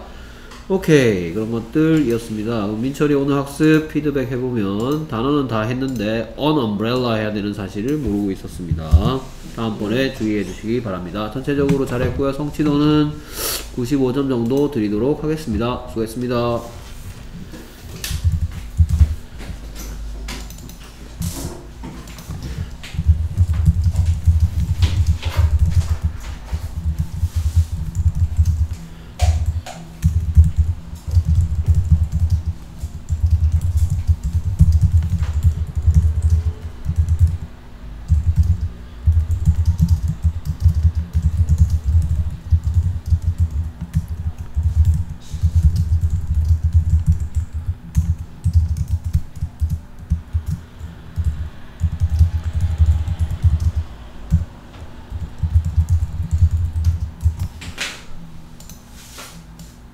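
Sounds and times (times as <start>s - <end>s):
typing on computer keyboard: 18.0s - 19.2s, 19.9s - 21.4s, 22.0s - 54.5s, 55.1s - 57.7s.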